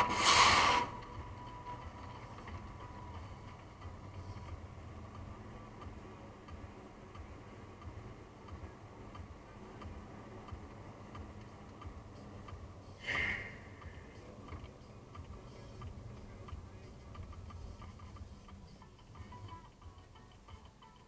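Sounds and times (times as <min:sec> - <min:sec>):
car interior rumble on snow: 0:00.0 - 0:19.6.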